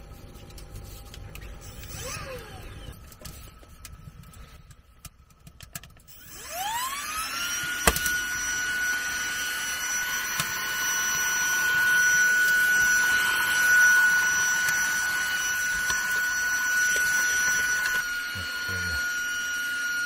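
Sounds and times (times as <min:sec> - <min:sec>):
handheld vacuum motor whine: 0:00.0 - 0:04.9, 0:06.0 - 0:20.0
vacuum sucking up wood chips: 0:06.2 - 0:20.0.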